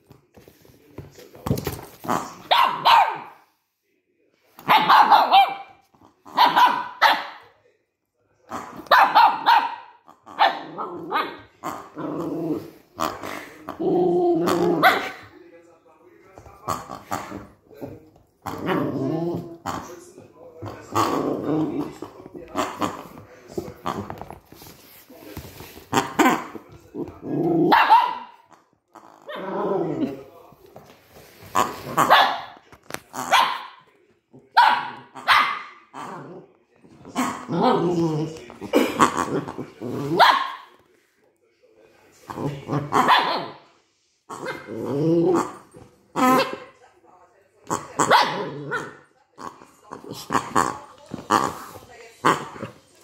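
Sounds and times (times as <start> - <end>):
small dog barking: 2.5 - 3.3, 4.6 - 5.7, 6.4 - 7.4, 8.9 - 11.3, 27.7 - 28.4, 32.1 - 32.6, 33.3 - 33.8, 34.6 - 35.8, 40.2 - 40.7, 43.0 - 43.5
dog growling: 10.1 - 15.3, 16.7 - 20.0, 20.6 - 24.3, 25.9 - 27.9, 28.9 - 30.3, 35.8 - 36.5, 37.1 - 40.2, 44.3 - 46.6, 47.7 - 52.8.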